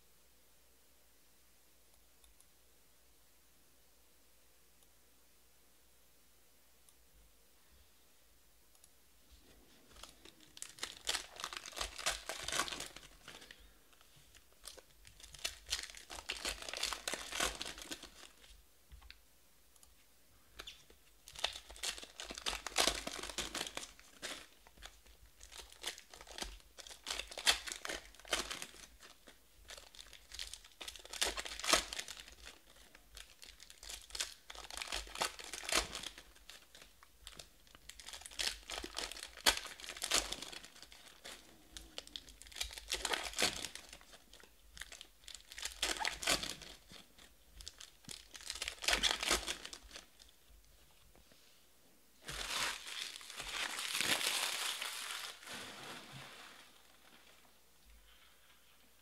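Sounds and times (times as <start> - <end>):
foil wrappers tearing and crinkling: 10.0 - 13.6, 14.3 - 18.5, 21.3 - 50.3, 52.2 - 56.9.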